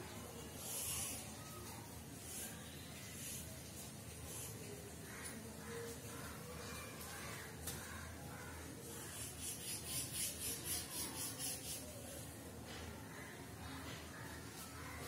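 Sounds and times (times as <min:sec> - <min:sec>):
chalk scratching on blackboard: 0:09.1 - 0:11.8.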